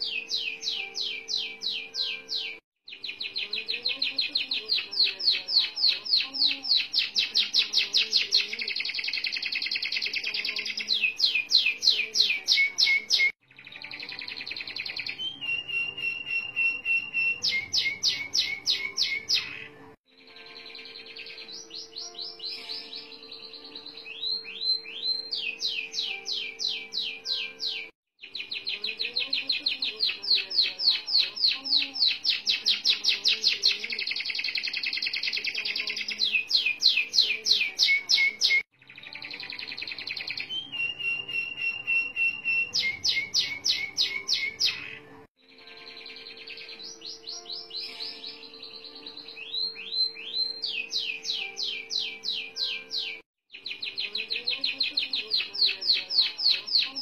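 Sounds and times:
canary singing trills: 0.0s - 57.0s.

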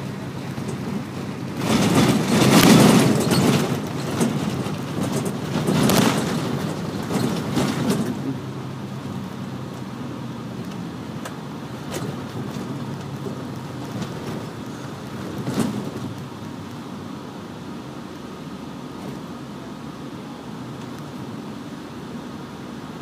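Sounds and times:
short rattles and knocks: 0.0s - 8.6s, 10.7s - 16.4s
coach engine and road noise: 0.0s - 23.0s.

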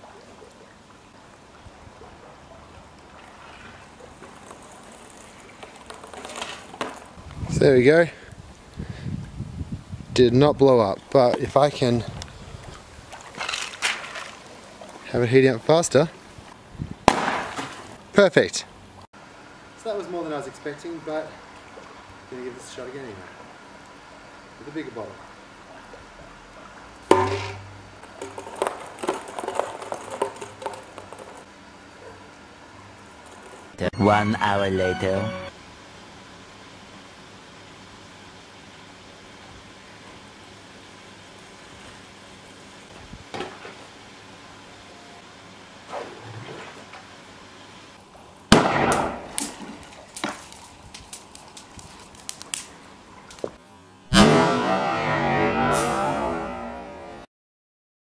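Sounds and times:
loud bang of bottle bursting: 17.1s - 17.7s, 27.1s - 27.8s, 48.5s - 49.3s, 54.1s - 56.6s
ping pong balls clattering in tube: 27.1s - 31.5s
sharp burst of noise: 54.1s - 57.3s.

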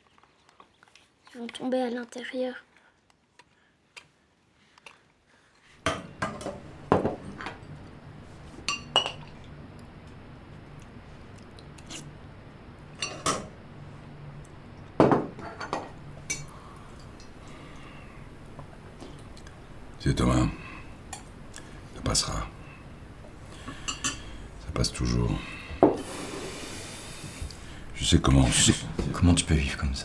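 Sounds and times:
low room hum: 0.0s - 30.0s
cutlery and dishes clinking: 13.0s - 13.5s.

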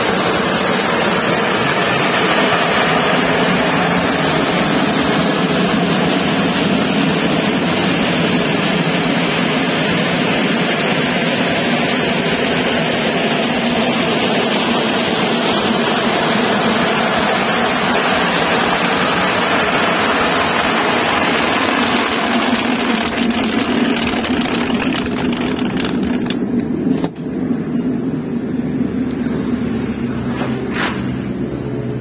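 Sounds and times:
walnut-peeling machine running: 0.0s - 10.4s, 16.0s - 26.6s
rushing rattle: 0.0s - 26.5s.

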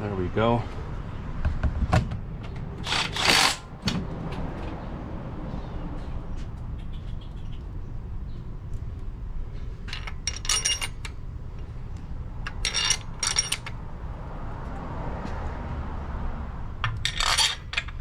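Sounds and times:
metal tools clinking: 9.8s - 11.2s, 12.4s - 13.8s, 16.8s - 18.0s.

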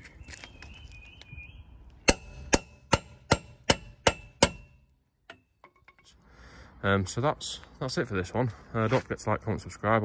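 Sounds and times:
hammer striking metal bar: 2.0s - 5.9s.

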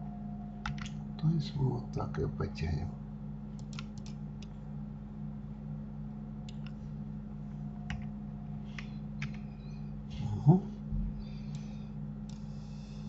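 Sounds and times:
low electrical hum: 0.0s - 13.0s
keyboard and mouse clicks: 0.6s - 1.0s, 3.6s - 4.5s, 6.5s - 6.8s.

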